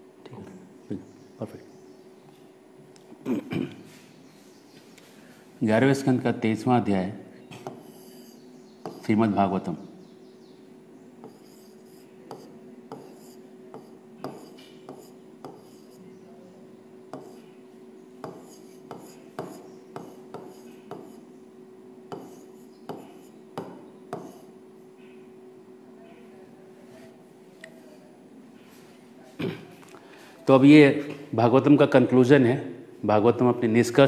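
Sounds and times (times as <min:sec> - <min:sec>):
steady low hum: 0:00.0 - 0:33.9
faint scratchy pen strokes: 0:11.2 - 0:16.0.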